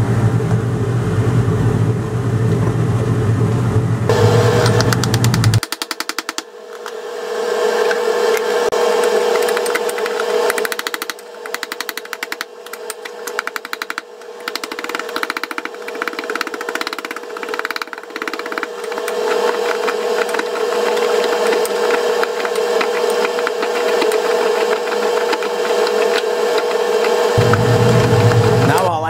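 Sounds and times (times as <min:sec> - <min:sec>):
steady hum: 0:00.0 - 0:29.0
pestle grinding tablets in mortar: 0:08.8 - 0:28.9.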